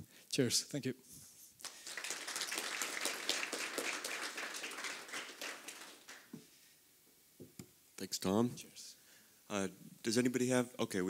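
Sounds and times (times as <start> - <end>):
audience applauding: 1.6 - 6.4.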